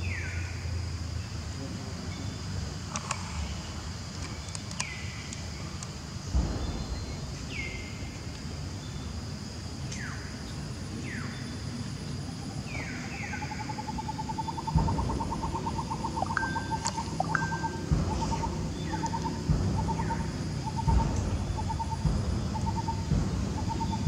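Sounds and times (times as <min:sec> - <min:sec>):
insect hum: 0:00.0 - 0:24.0
falling whistled bird calls: 0:12.7 - 0:24.0
low thumps: 0:14.5 - 0:24.0.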